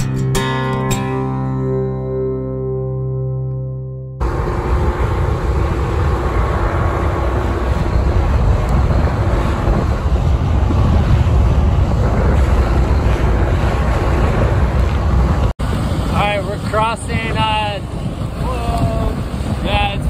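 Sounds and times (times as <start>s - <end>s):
outboard motor running: 4.2s - 19.8s
rush of wake and waves: 4.2s - 20.0s
wind noise on microphone: 4.2s - 20.0s.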